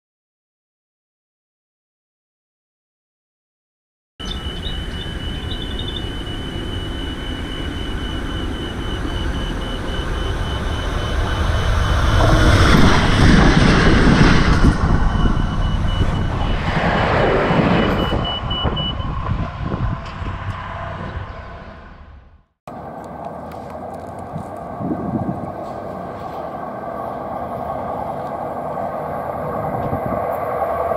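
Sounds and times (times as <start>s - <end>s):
fast-pulsing high tone: 4.2s - 19.1s
diesel train rumbling past: 4.2s - 30.9s.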